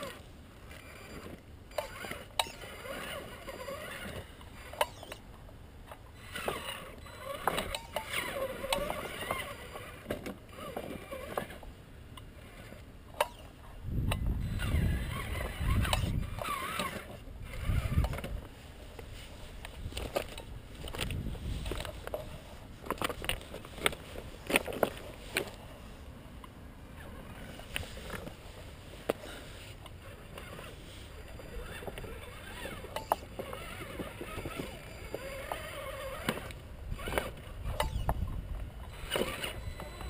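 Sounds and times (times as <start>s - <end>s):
rc car electric motor whining: 0.0s - 5.2s, 6.1s - 11.7s, 12.3s - 13.5s, 14.1s - 18.5s, 29.2s - 40.0s.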